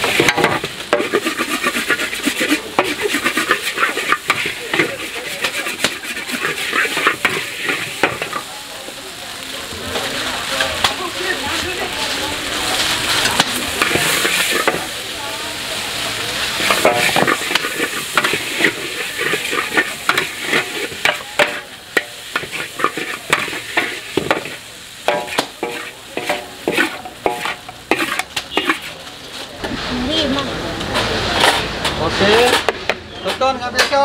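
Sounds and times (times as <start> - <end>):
metal spatula scraping and clanking: 0.0 - 8.5, 12.7 - 14.9, 16.6 - 30.0, 30.8 - 33.9
noodles sizzling in a wok: 0.0 - 33.6.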